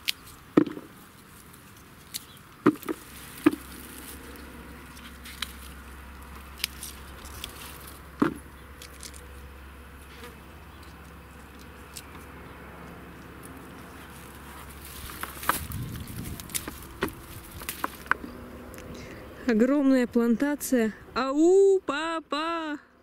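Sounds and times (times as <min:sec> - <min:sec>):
pea pods snapping: 0:00.0 - 0:09.3, 0:12.9 - 0:19.0
rustling stems and leaves: 0:00.0 - 0:20.4.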